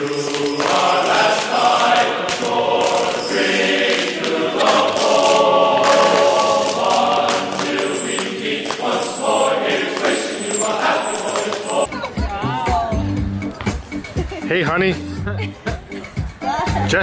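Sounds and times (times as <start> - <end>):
choir-style singing music: 0.0 - 12.0.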